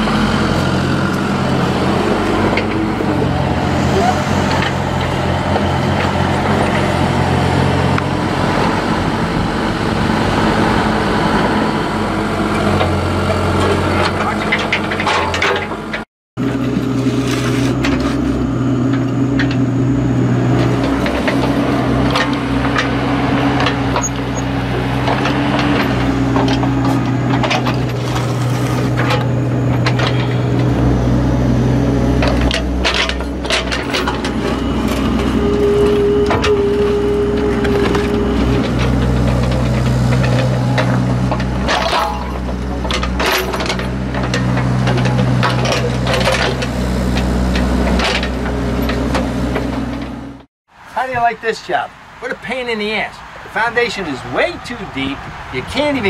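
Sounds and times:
excavator diesel engine: 0.0s - 56.0s
bucket scraping soil and stones: 16.5s - 18.5s, 24.8s - 30.9s.

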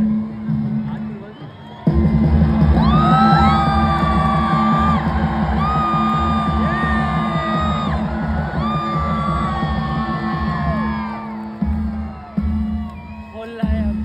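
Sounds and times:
loud music with steady beat: 1.9s - 14.0s
long drawn-out yells: 2.8s - 11.5s.

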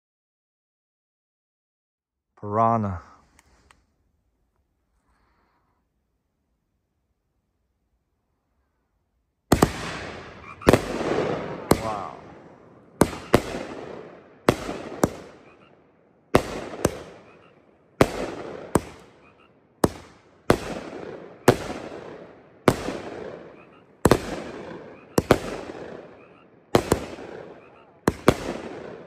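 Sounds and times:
firework bangs: 9.5s - 29.0s.

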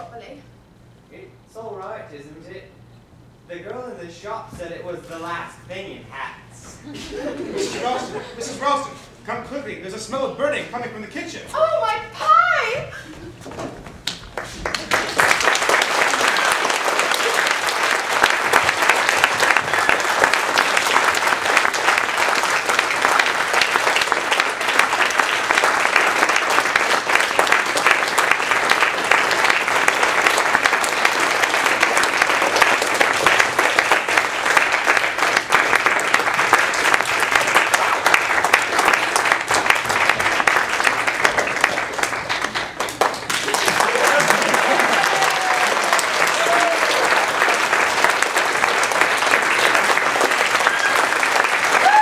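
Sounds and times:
audience applauding: 14.0s - 52.0s.

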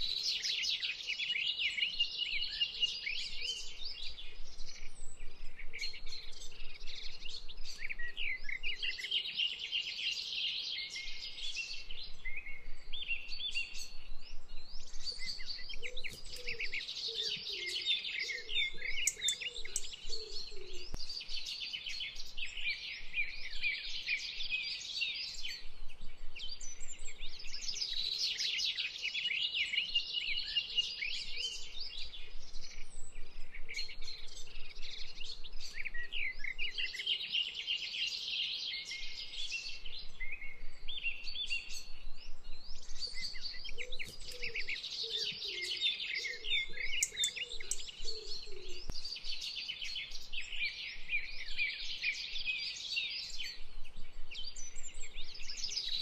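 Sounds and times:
birds chirping and trilling: 0.0s - 56.0s.

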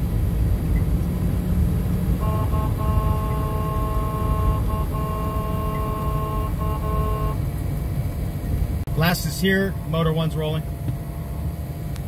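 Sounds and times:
engine and road rumble: 0.0s - 12.0s
vehicle horn: 2.1s - 7.4s.

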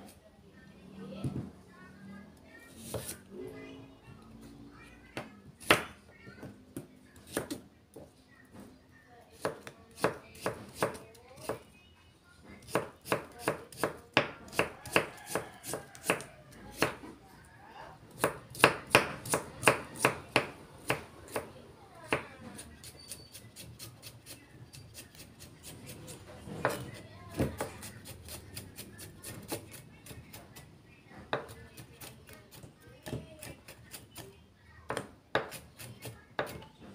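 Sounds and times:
knife chopping on wooden board: 2.8s - 3.2s, 12.7s - 17.0s, 26.5s - 30.2s, 34.9s - 36.6s.

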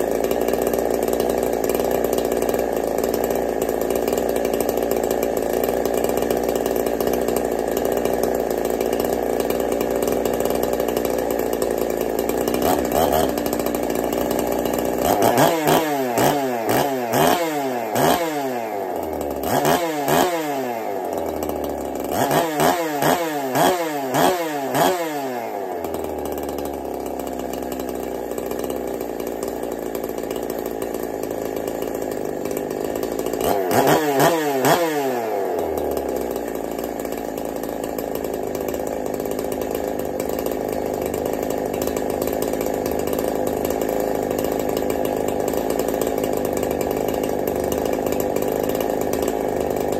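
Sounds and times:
chainsaw idling and revving: 0.0s - 49.9s.

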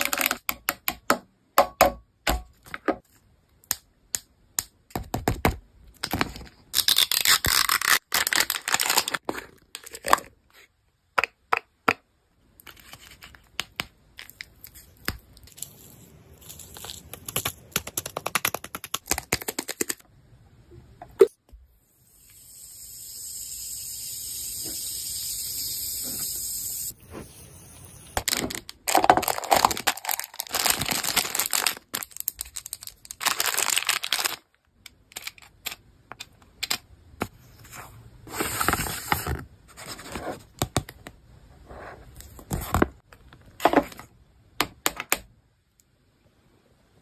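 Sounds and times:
wrapper tearing and crinkling: 6.7s - 9.2s, 28.2s - 34.5s
steady hiss: 21.9s - 28.2s.

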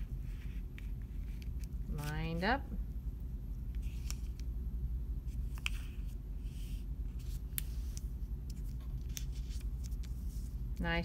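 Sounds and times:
low room hum: 0.0s - 11.0s
paper rustling and folding: 5.5s - 10.6s.

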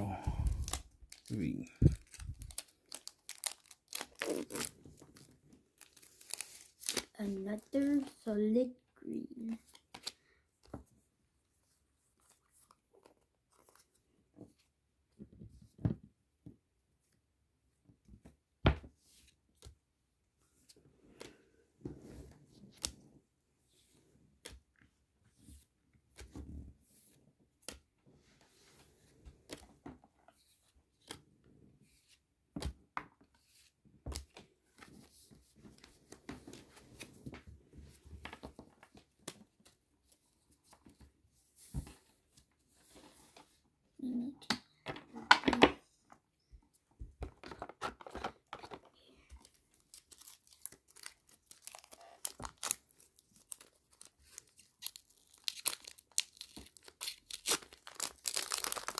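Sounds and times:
foil wrapper crinkling and tearing: 0.4s - 7.8s, 49.7s - 58.9s
cards tapping and rustling: 47.1s - 58.9s.

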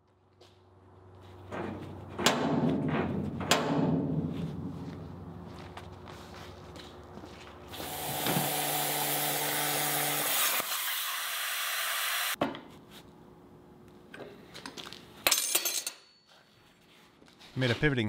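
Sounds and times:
plasma cutter hissing: 7.8s - 12.4s.

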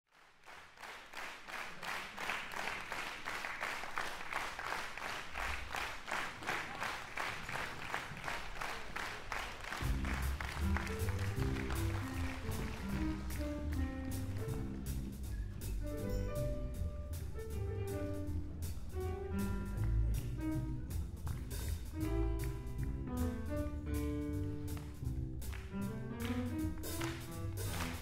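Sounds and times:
hands clapping a steady beat: 0.2s - 15.8s, 19.5s - 23.2s, 24.4s - 28.0s
wind band playing swing: 9.6s - 28.0s
low bass line: 9.8s - 28.0s.

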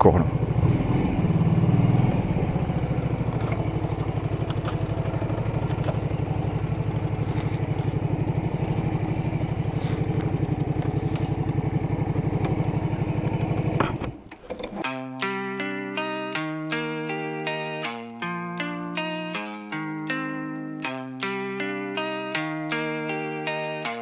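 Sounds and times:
motorcycle engine at low revs: 0.0s - 14.8s.

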